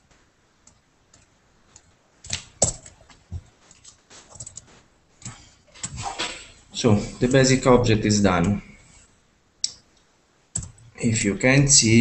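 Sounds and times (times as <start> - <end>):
keyboard and mouse clicks: 0.1 - 6.4, 9.6 - 10.9.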